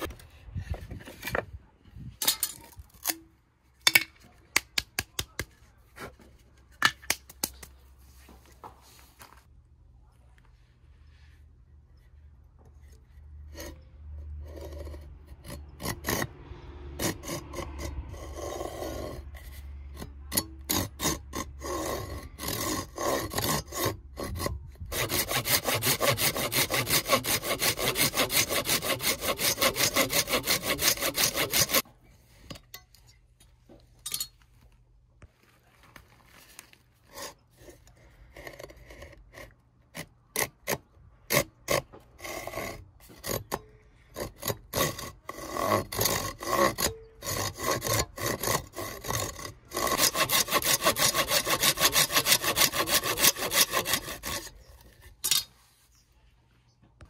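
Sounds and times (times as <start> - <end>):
knocks and scrapes: 0.0 - 9.5, 10.2 - 57.0
hand saw cutting bamboo: 13.5 - 31.8, 37.1 - 55.5.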